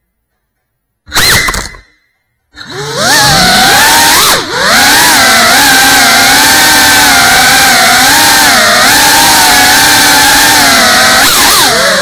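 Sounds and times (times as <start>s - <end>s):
drone motors whining: 2.6s - 12.0s.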